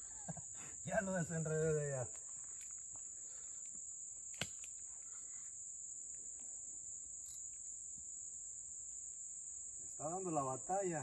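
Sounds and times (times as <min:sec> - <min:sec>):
high-pitched insect chirring: 0:00.0 - 0:11.0.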